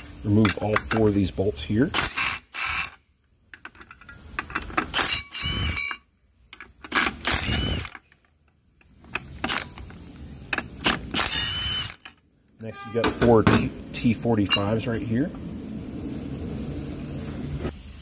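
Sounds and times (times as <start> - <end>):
cordless power tool bursts: 1.9 - 3.0, 4.9 - 5.9, 6.9 - 8.1, 10.9 - 12.1.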